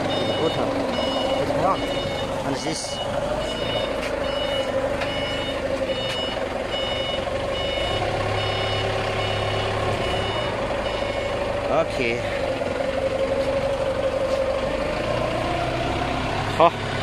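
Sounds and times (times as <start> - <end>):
electronic beeping: 0.1 - 11.3.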